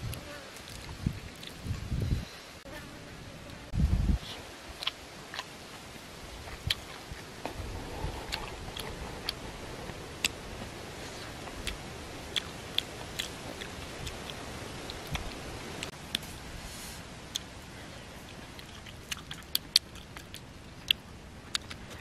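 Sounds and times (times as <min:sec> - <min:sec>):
person chewing with wet mouth clicks: 0:06.5 - 0:06.9, 0:08.3 - 0:09.4, 0:11.5 - 0:16.2, 0:18.4 - 0:22.0.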